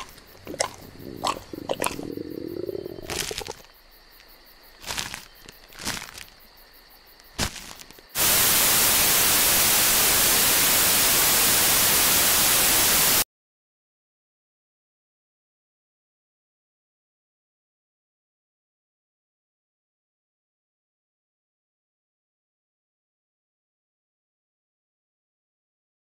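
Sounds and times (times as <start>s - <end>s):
sharp crackles: 0.0s - 6.4s, 7.3s - 10.0s
tv static hiss: 8.2s - 13.2s.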